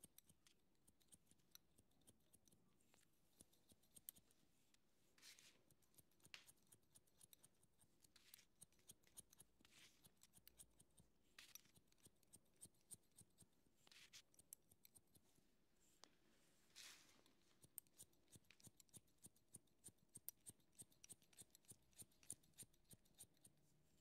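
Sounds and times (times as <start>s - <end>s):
scissors snipping hair: 0.0s - 4.4s, 5.2s - 15.2s, 16.8s - 23.6s.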